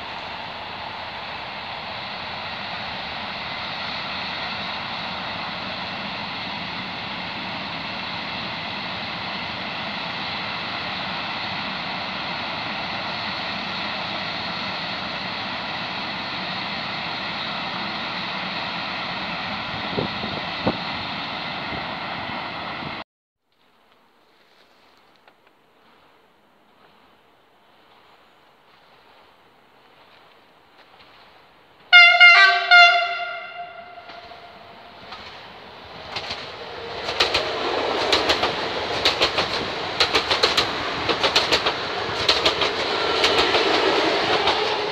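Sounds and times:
freight train passing: 0.0s - 23.0s, 31.7s - 44.9s.

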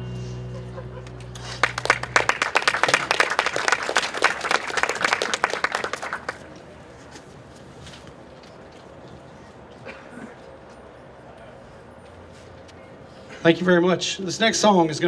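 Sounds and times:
band low note: 0.0s - 2.3s
audience applauding: 1.0s - 6.5s.

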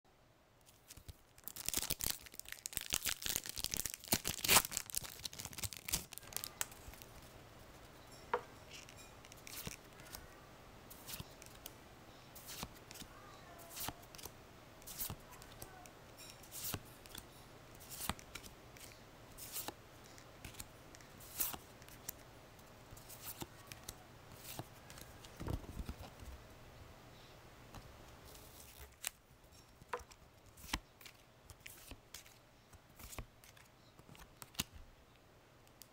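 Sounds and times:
foil wrapper crinkling: 0.7s - 7.2s.

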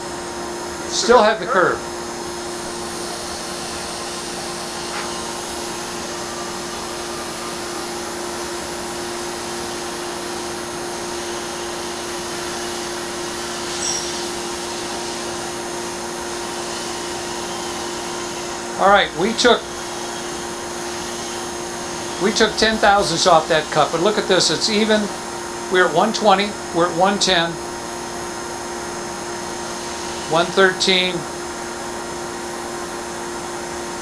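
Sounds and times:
vacuum pump humming: 0.0s - 34.0s
air hissing: 2.5s - 25.4s.

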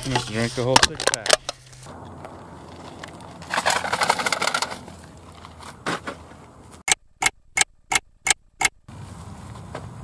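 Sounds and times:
sharp clicks: 6.9s - 8.8s.

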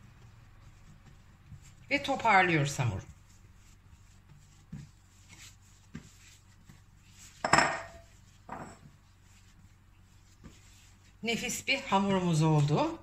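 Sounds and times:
dough knocking on countertop: 7.4s - 8.9s.

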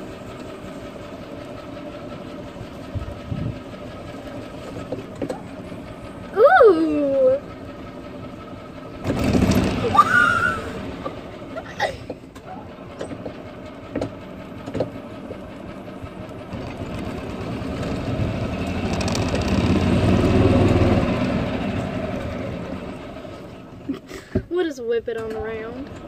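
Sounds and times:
golf cart driving: 0.0s - 26.0s
knocks and rattles: 12.0s - 15.4s, 16.5s - 20.9s.

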